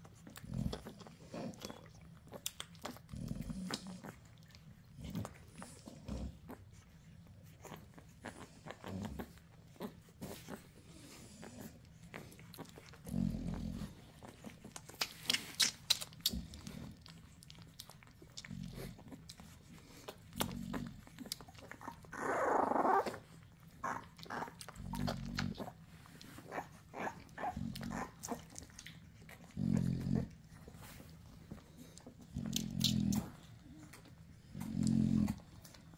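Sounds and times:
dog low grunts: 0:00.0 - 0:06.7, 0:07.6 - 0:35.9
puppies suckling clicks: 0:00.0 - 0:35.9.

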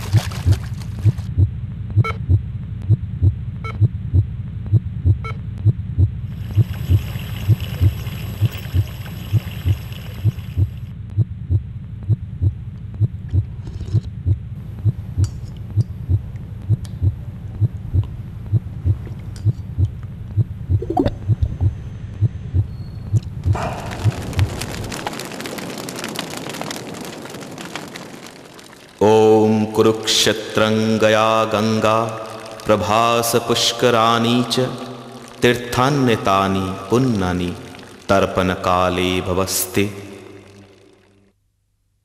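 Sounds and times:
heartbeat thumps: 0:00.0 - 0:24.6
low hum: 0:00.0 - 0:25.5.

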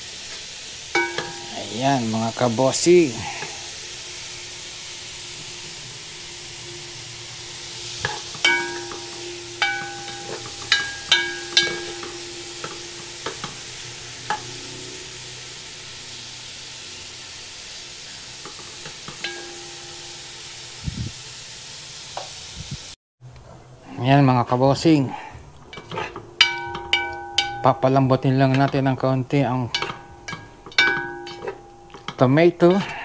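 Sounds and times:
vegetables sizzling in oil: 0:00.0 - 0:23.0, 0:24.2 - 0:33.0
utensil knocking against pan: 0:01.0 - 0:01.6, 0:08.0 - 0:13.6, 0:25.7 - 0:27.9, 0:29.7 - 0:33.0.

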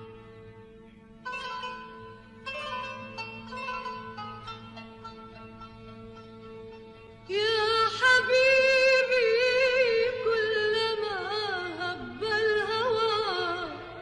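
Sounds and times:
ornamented melody line: 0:00.0 - 0:10.4.

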